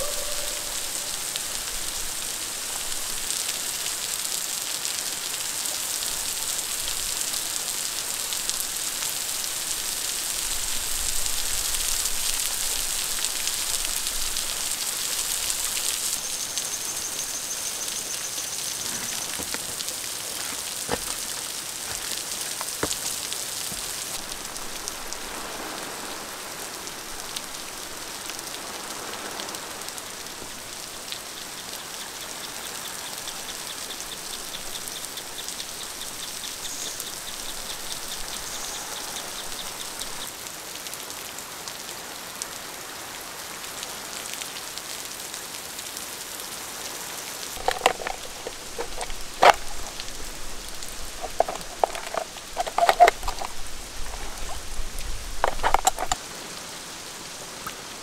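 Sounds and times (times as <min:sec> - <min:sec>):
rain falling on rocks and water: 0:00.0 - 0:58.0
sharp clicks: 0:55.4 - 0:56.2.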